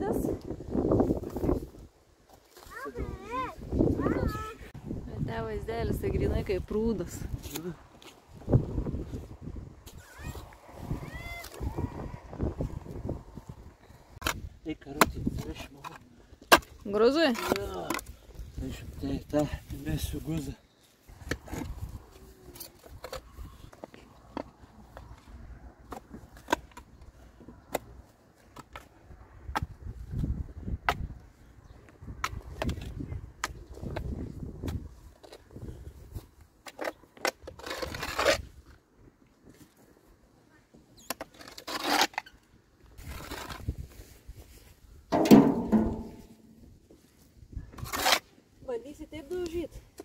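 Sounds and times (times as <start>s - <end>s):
metal spade digging brick and soil: 45.2s - 46.6s.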